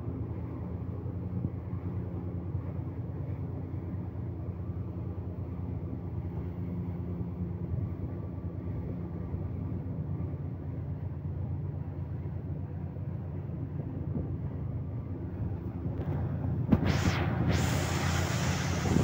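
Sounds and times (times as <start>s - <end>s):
speedboat engine humming: 0.0s - 19.0s.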